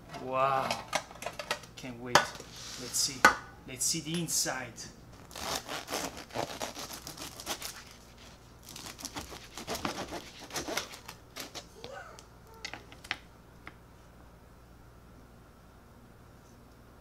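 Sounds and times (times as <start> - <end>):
knife sawing through crusty bread: 5.3 - 11.6.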